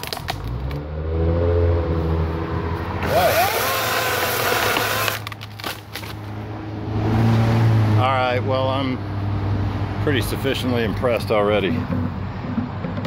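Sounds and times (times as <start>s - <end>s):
electric chainsaw hum: 3.0s - 5.3s.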